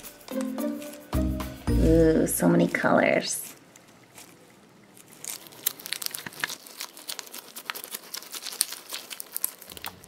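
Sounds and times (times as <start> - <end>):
water beads crackling in stress ball: 0.0 - 1.2, 2.4 - 10.0.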